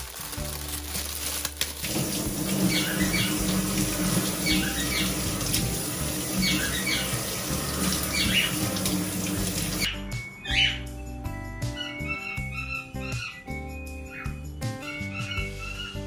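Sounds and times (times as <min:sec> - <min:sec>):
tap water running into sink: 0:01.8 - 0:09.9
bird chirping: 0:02.6 - 0:03.7, 0:04.4 - 0:05.5, 0:06.3 - 0:08.8, 0:09.7 - 0:16.0.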